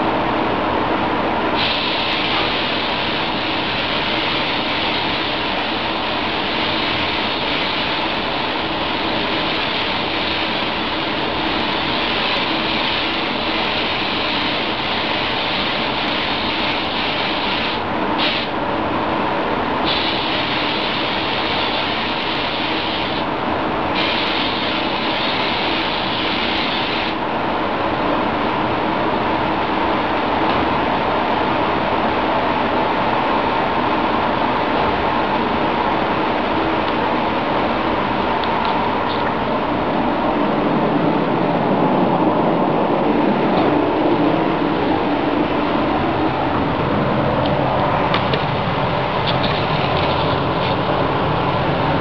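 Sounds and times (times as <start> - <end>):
ventilation rushing: 0.0 - 52.0
spray gun hissing: 1.6 - 18.6, 19.8 - 23.3, 23.9 - 27.2.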